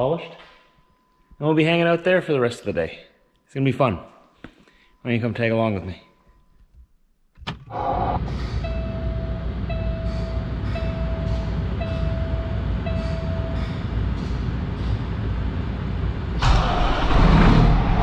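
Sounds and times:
dash warning chime beeping: 8.6 - 13.6.

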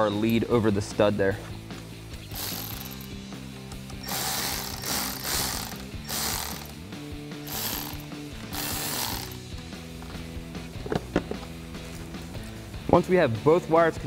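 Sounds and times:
cordless electric ratchet spinning: 2.3 - 3.1, 3.9 - 6.8, 7.4 - 9.4.

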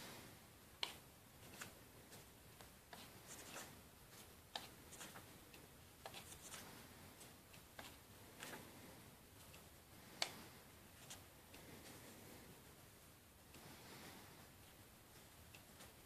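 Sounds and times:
book pages turning: 0.8 - 2.3, 6.0 - 8.7.

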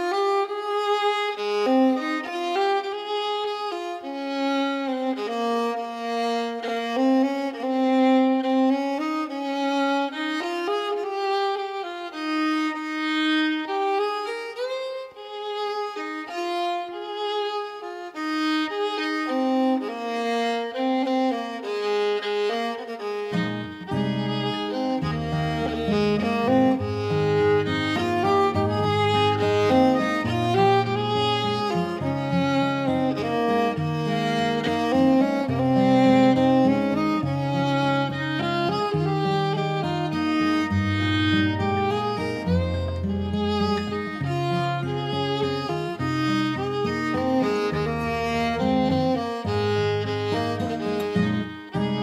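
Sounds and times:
instrumental background music: 17.8 - 52.0.

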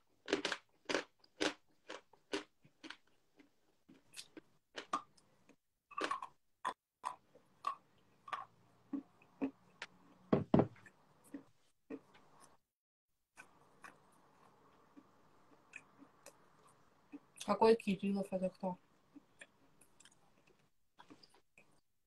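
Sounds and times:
loud knock: 10.3 - 10.7.

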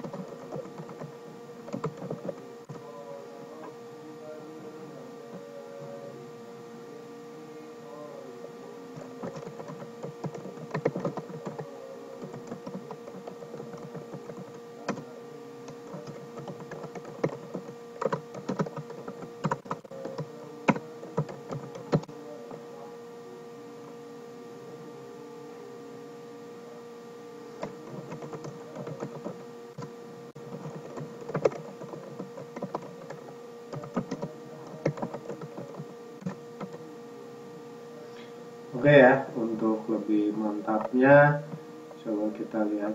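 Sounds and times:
typing on computer keyboard: 0.0 - 1.1, 1.7 - 2.4, 9.2 - 15.0, 15.7 - 22.1, 27.6 - 29.9, 30.5 - 36.8
steady hum: 0.0 - 42.9.

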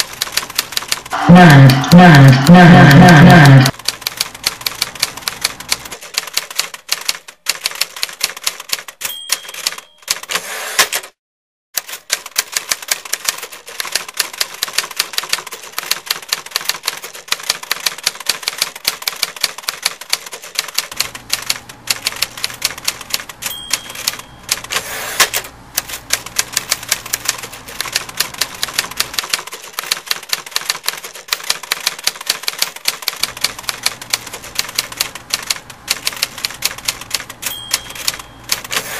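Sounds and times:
typewriter keystrokes clattering: 0.0 - 1.7, 3.7 - 11.1, 11.8 - 38.9
typewriter bell ding: 8.9 - 10.9, 23.4 - 24.8, 37.4 - 38.9.

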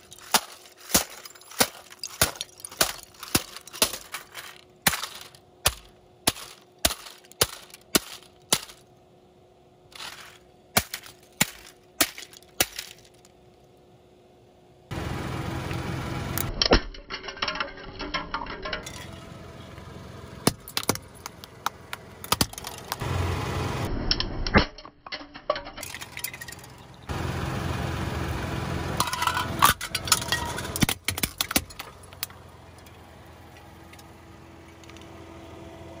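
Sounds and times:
plastic bottles cracking: 0.0 - 8.9, 10.0 - 13.3, 20.5 - 23.0, 25.0 - 26.8, 29.0 - 32.3
steady low hum: 0.0 - 24.5
low car rumble: 14.6 - 16.7, 18.3 - 24.3, 25.8 - 36.0.

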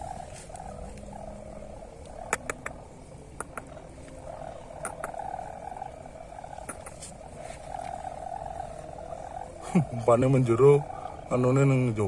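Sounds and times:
frogs calling in chorus: 0.0 - 12.0
sharp clicks: 2.0 - 3.8, 4.8 - 5.2, 6.6 - 7.0.

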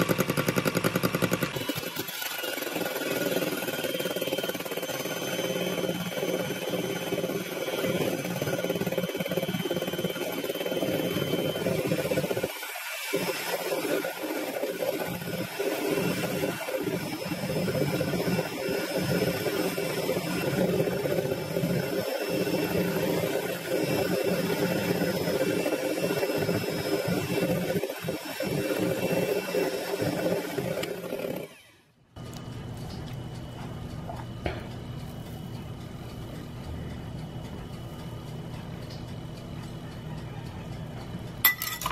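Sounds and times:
electric hand mixer whirring: 0.0 - 32.0
wire beaters whipping in glass bowl: 41.4 - 41.9.

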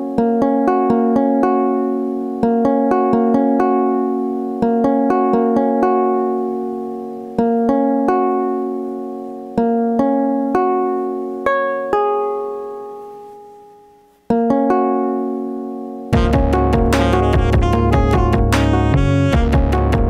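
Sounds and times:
synthesizer chords: 16.1 - 20.0.

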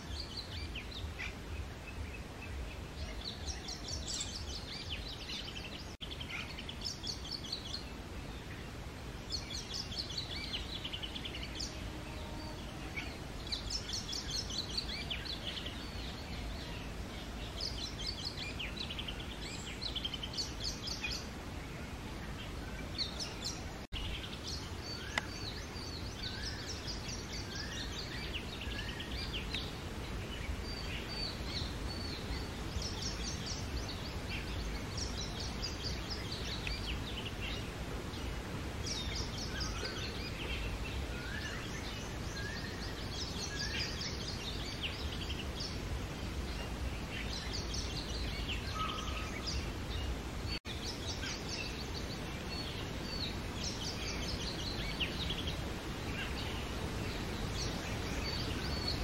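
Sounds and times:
bird singing whistled notes: 22.8 - 29.7, 38.8 - 45.8.

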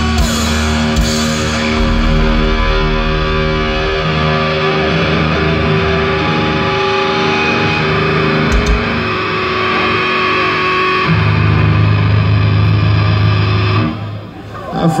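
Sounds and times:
metal band playing: 0.0 - 10.1.

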